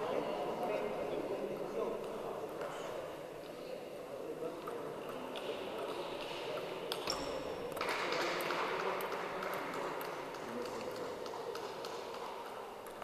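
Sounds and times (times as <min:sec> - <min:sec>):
faint ping pong clicks: 0:01.9 - 0:13.0
table tennis ball hits: 0:04.6 - 0:13.0.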